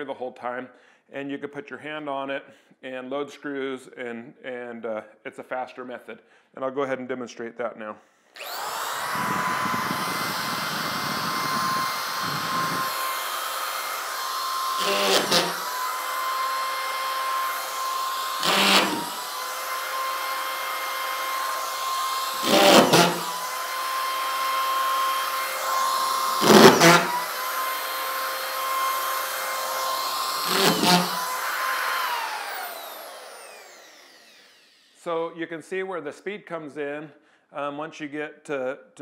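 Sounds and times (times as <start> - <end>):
motor spinning down: 8.4 - 35.0
screw gun motor whining: 8.4 - 35.0.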